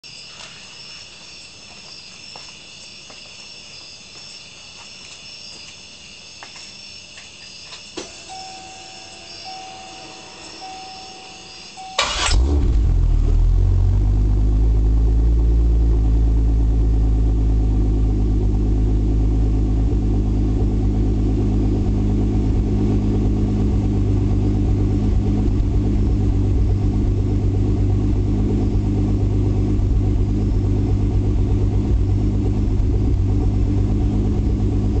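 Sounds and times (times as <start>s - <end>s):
beeps: 8.0s - 12.4s
car engine starting and idling: 8.0s - 35.0s.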